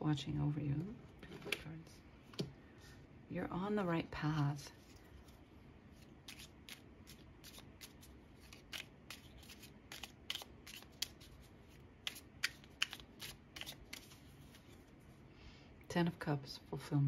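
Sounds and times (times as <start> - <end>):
cards being shuffled: 6.0 - 14.9.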